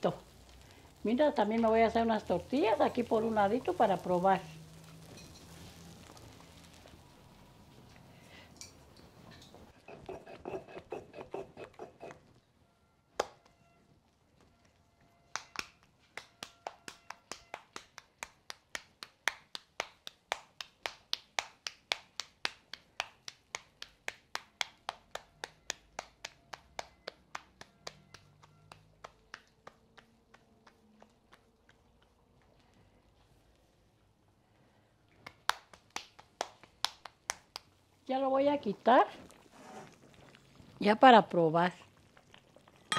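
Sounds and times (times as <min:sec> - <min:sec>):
hands patting tortilla dough: 0:15.3 - 0:33.2, 0:35.1 - 0:37.8.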